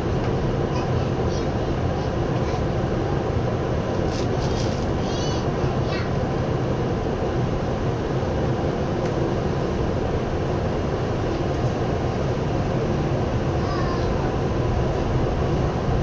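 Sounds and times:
train wheels running on rails: 3.8 - 6.2.

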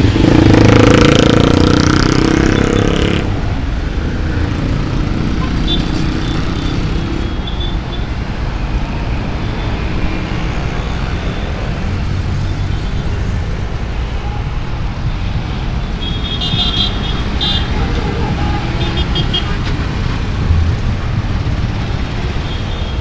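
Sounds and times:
traffic rumble: 0.0 - 23.0.

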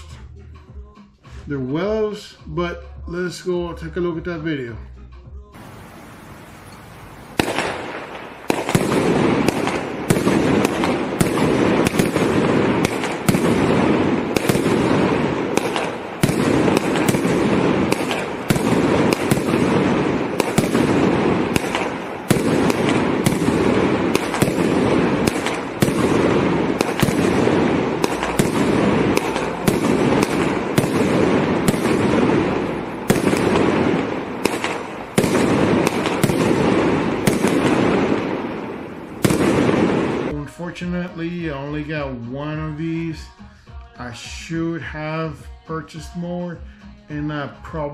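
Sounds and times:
firework bursts: 5.6 - 40.4
firework rumble: 5.6 - 40.4.

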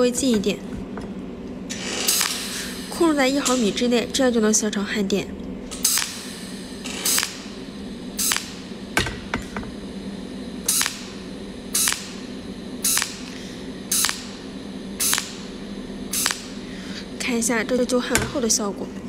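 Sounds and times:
steady low hum: 0.0 - 19.0
welder hissing arc pulses: 1.7 - 4.2, 5.7 - 17.9.

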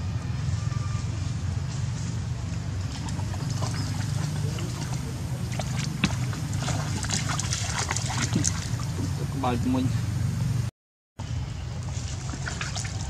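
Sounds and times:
steady low hum: 0.0 - 13.0
monkeys splashing in water: 2.8 - 9.3, 11.8 - 13.0.

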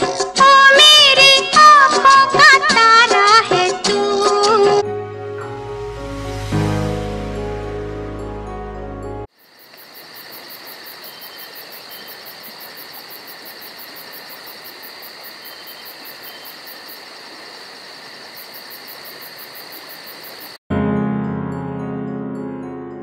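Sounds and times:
song: 0.4 - 9.3
crickets chirping: 9.3 - 20.6.

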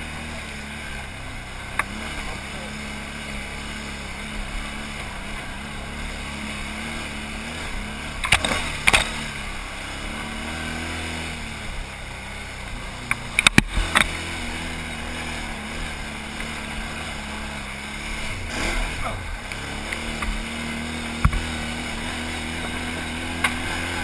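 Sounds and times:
atv engine running at low revs: 0.0 - 24.0.

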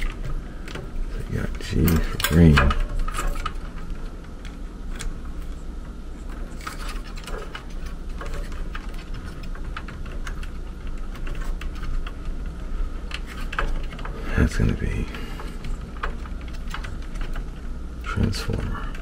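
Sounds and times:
steady low hum: 0.0 - 19.0
wire terminals clicking and rattling: 0.0 - 19.0.

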